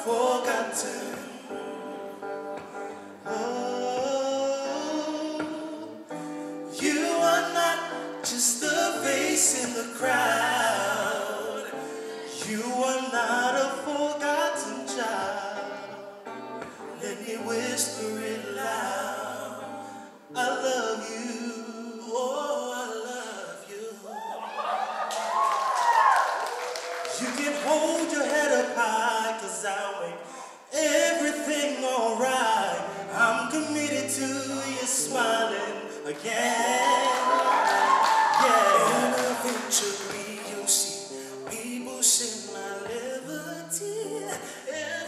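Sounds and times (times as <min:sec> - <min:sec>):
men singing gospel song: 0:00.0 - 0:01.6, 0:06.7 - 0:24.2, 0:27.0 - 0:45.0
electric guitar: 0:00.0 - 0:21.9, 0:32.2 - 0:45.0.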